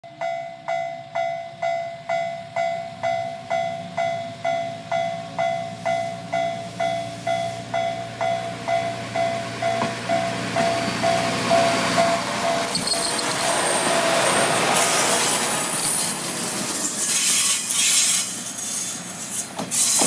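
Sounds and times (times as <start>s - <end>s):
level crossing warning bell: 0.0s - 14.2s
diesel railcar engine rumble: 0.1s - 20.0s.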